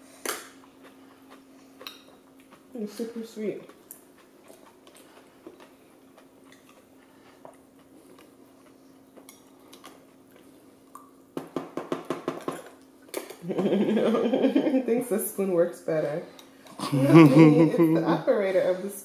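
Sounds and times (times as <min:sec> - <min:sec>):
low steady hum: 0:12.4 - 0:19.0.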